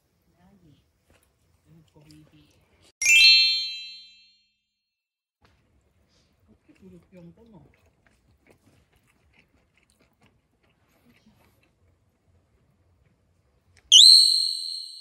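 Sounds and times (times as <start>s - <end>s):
bright chime ding: 3.0s - 4.3s, 13.9s - 15.0s.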